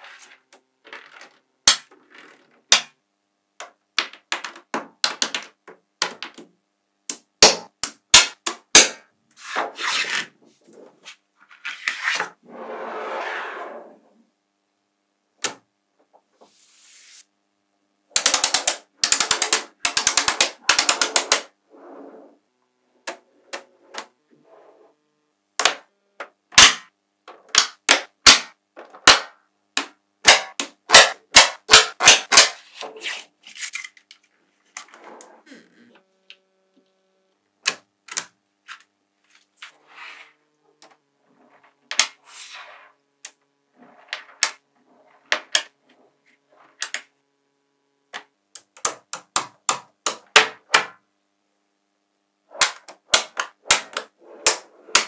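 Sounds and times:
magnetic balls snapping together: 18.2 - 21.5, 37.6 - 38.8.

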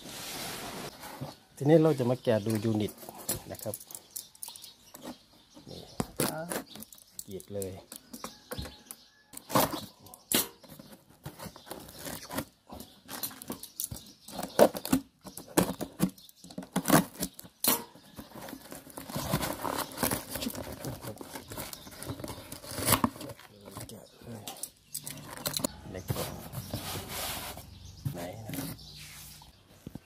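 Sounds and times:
cardboard boxes knocking and scraping: 14.3 - 17.3, 25.3 - 28.9
packaging rustling and tearing: 15.6 - 24.0.

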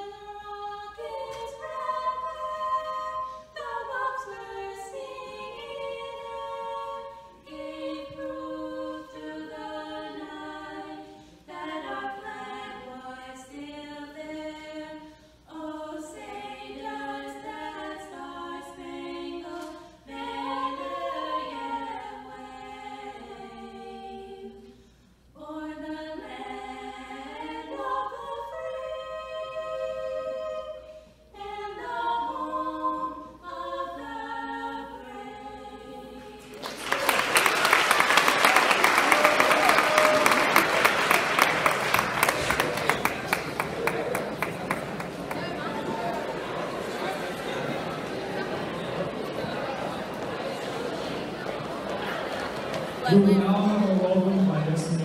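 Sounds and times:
women singing an anthem unaccompanied: 0.0 - 24.8, 25.4 - 36.8.

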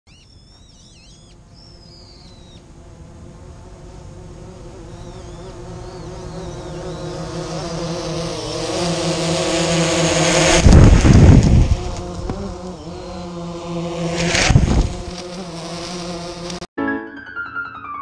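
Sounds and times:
bird chirps: 0.1 - 2.7, 4.8 - 7.3
drone propellers buzzing: 1.3 - 16.6.

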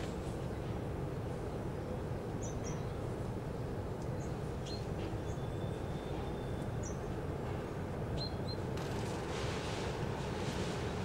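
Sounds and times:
sparrows chirping: 2.4 - 3.2, 4.0 - 7.2, 8.1 - 8.7.

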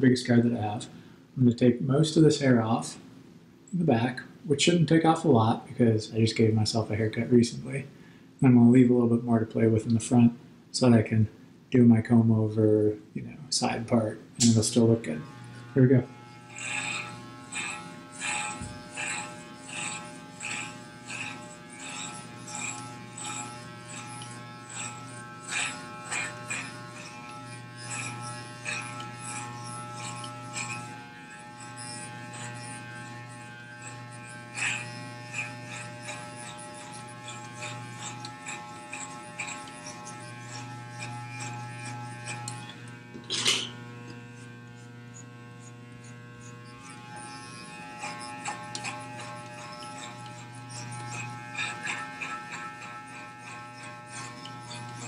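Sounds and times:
electric hair clippers buzzing: 14.4 - 55.0.

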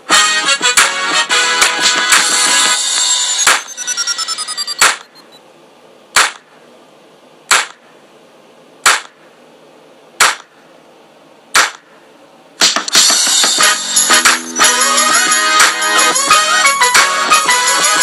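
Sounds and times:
sharp percussive hits: 1.6 - 5.2, 6.2 - 6.5, 12.6 - 16.0
falling run of notes: 13.2 - 17.9.

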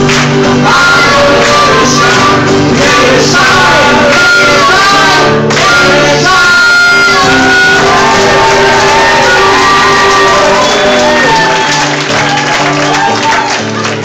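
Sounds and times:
man singing pop music: 0.4 - 11.6
people shouting: 5.9 - 13.7.

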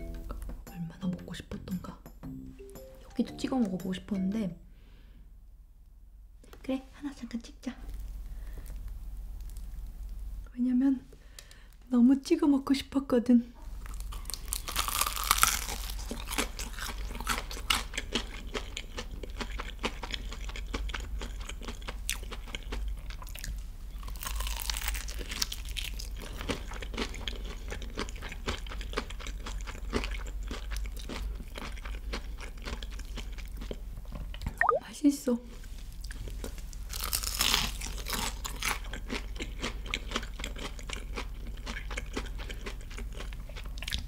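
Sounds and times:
crunchy bites of fried chicken: 13.8 - 33.9, 36.5 - 44.0
crackly chewing: 13.8 - 34.4, 36.0 - 44.0.

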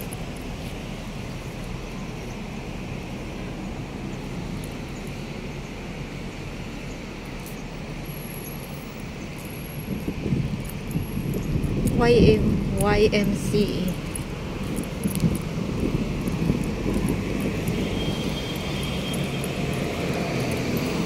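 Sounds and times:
city road traffic hum: 0.0 - 21.0.

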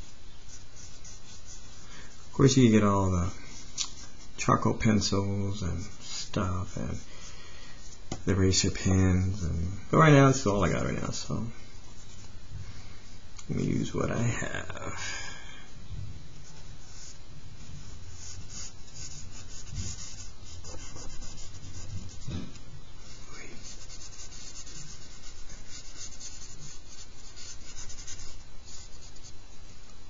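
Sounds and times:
charcoal scratching on paper: 0.0 - 7.1, 16.4 - 29.4
soft bumps: 21.6 - 22.8.

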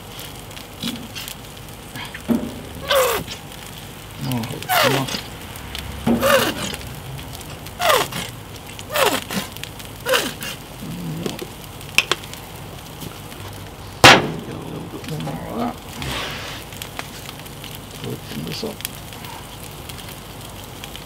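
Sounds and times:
squeeze bottle squirting sauce: 2.8 - 3.5, 6.1 - 6.9, 8.9 - 10.6.

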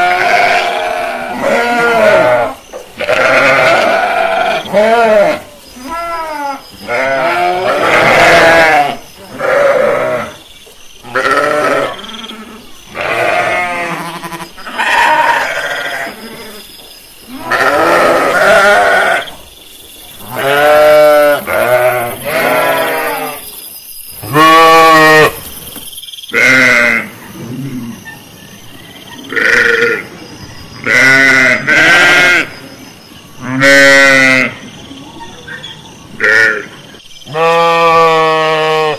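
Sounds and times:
sheep bleating: 0.0 - 10.4, 11.0 - 16.5, 17.3 - 19.3, 20.2 - 23.4, 24.2 - 25.4, 26.3 - 27.1, 30.8 - 32.5, 33.4 - 34.6, 37.3 - 38.9.

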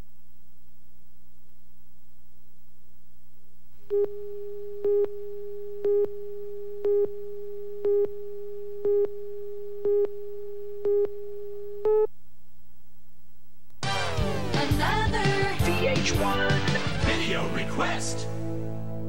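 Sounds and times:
low hum: 0.0 - 15.8
steady tone: 3.9 - 12.4.

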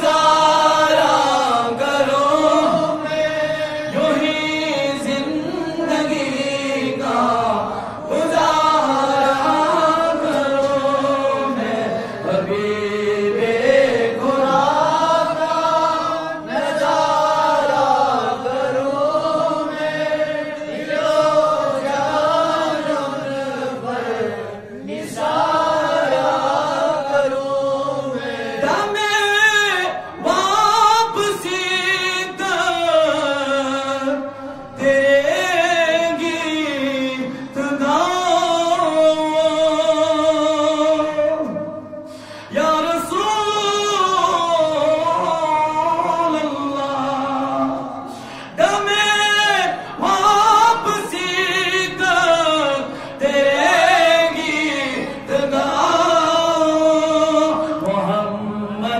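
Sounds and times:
man singing unaccompanied: 0.0 - 58.9.

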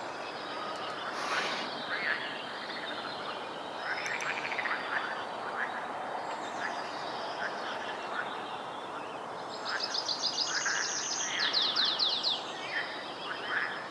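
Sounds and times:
frogs croaking: 0.0 - 13.9.

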